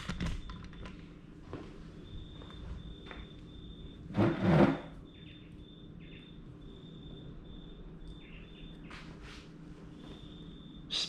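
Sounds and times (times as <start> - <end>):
small animal chirping: 5.1 - 8.9.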